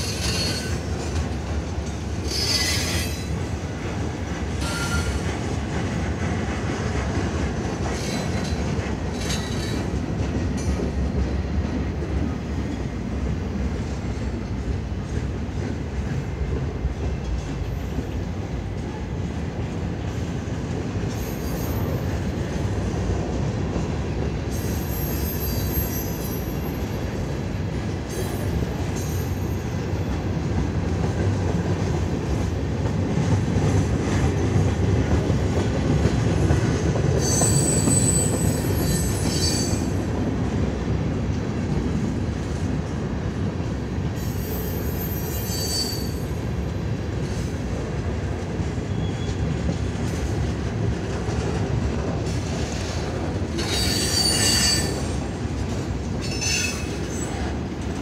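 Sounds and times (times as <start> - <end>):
high-pitched wheel squeals: 0.0 - 0.9, 2.3 - 3.3, 4.6 - 5.2, 37.2 - 39.9, 44.2 - 46.4, 53.6 - 55.1
train wheels rumbling on rail: 0.0 - 58.0.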